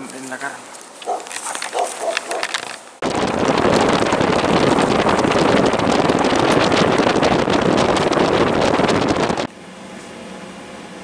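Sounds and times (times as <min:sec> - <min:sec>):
vehicle driving on dirt road: 0:02.2 - 0:09.5
wind rushing over microphone: 0:03.0 - 0:09.5.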